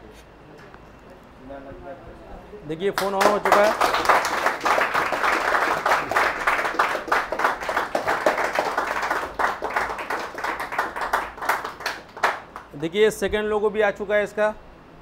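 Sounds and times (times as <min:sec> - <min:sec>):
group of people applauding: 0:02.9 - 0:12.8.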